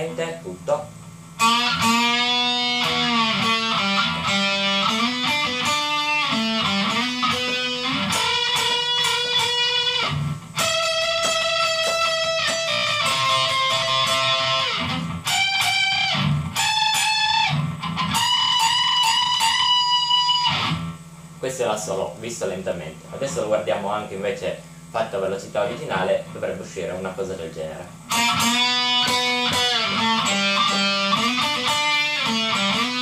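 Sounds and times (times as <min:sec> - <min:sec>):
electric guitar solo with bends: 0:01.4 - 0:21.0, 0:28.1 - 0:33.0.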